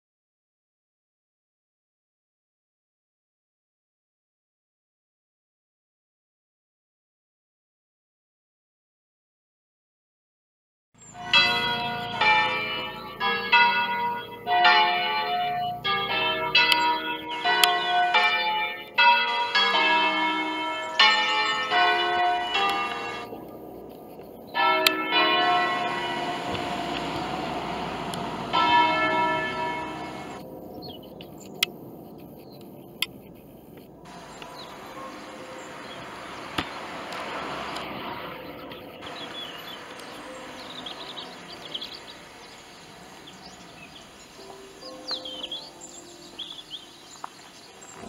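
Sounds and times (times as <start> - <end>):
church bells pealing: 11.0 - 48.0.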